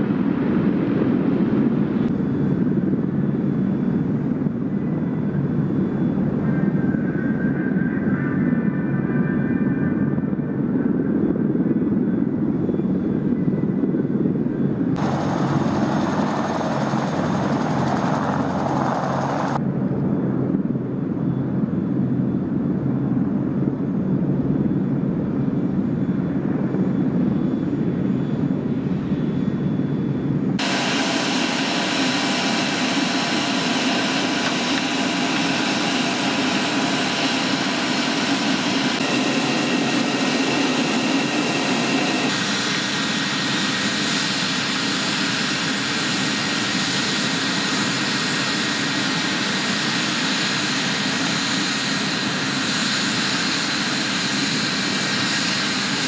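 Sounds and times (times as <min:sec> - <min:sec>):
helicopter rotors and engines: 0:00.0 - 0:56.0
turbine whine: 0:00.0 - 0:56.0.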